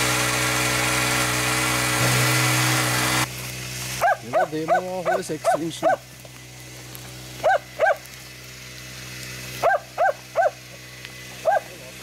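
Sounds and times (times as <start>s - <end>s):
dog barking: 4.0s - 6.0s, 7.4s - 8.0s, 9.6s - 10.6s, 11.4s - 11.8s.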